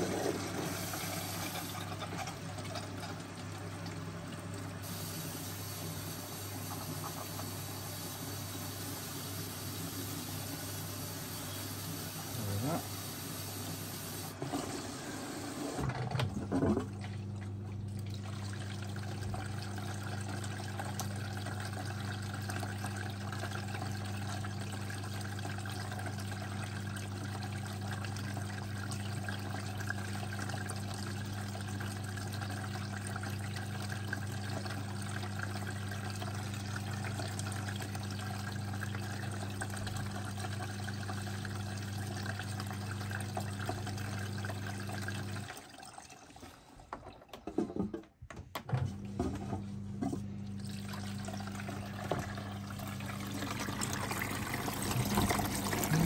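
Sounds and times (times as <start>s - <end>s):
water running in washing machine: 0.0s - 56.0s.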